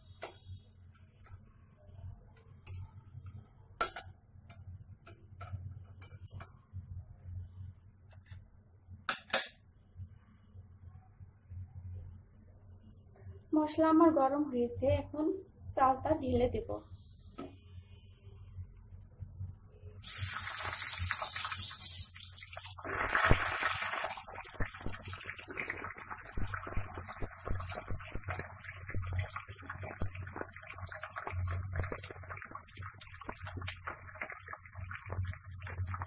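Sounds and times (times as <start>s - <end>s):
food sizzling in hot oil: 20.0s - 36.0s.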